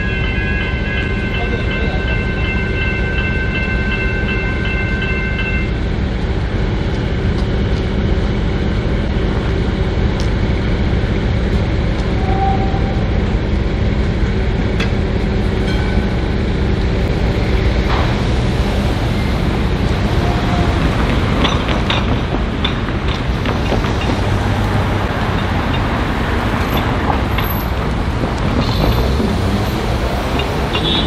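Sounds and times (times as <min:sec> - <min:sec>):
level crossing warning bells: 0:00.0 - 0:06.1
low train rumble: 0:00.0 - 0:31.0.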